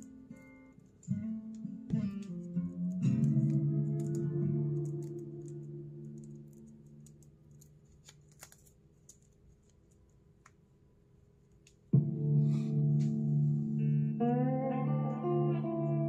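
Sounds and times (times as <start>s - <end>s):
guitar music: 0.0s - 7.1s, 12.0s - 16.0s
earphone cable clicks and rustles: 0.0s - 10.6s.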